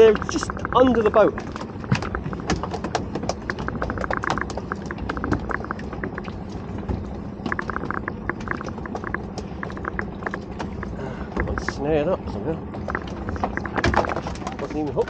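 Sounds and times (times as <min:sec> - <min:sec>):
rapid tapping and clicking: 0:00.0 - 0:12.0, 0:12.7 - 0:15.0
water lapping against boat hull: 0:00.0 - 0:15.0.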